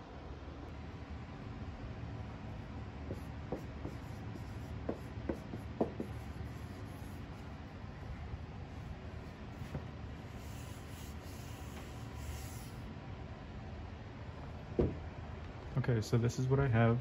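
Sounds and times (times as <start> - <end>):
marker squeaking on whiteboard: 3.1 - 7.4, 10.3 - 12.8.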